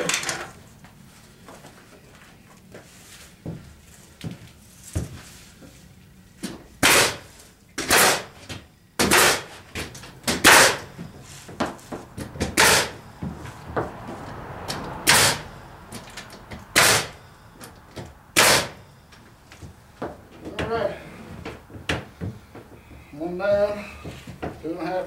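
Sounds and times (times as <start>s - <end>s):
air nailer firing: 6.8s - 9.7s, 10.3s - 10.9s, 12.5s - 13.0s, 15.1s - 15.4s, 16.7s - 17.2s, 18.4s - 18.8s
exhaust air puff: 10.4s - 19.3s.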